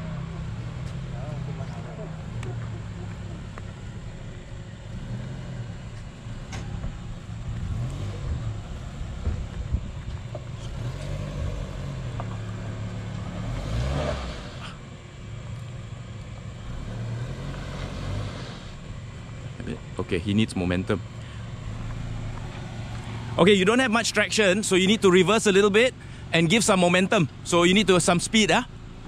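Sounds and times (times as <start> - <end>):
engine revving: 4.7 - 14.9, 16.4 - 19.9.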